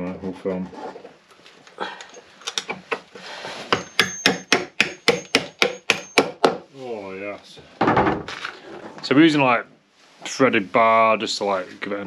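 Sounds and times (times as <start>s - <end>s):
hammer striking metal bolt: 3.7s - 6.5s.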